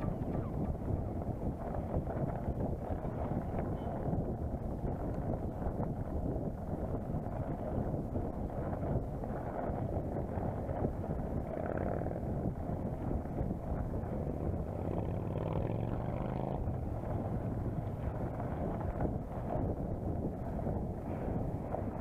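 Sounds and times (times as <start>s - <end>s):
low steady hum: 0.0s - 22.0s
wind buffeting microphone: 0.0s - 22.0s.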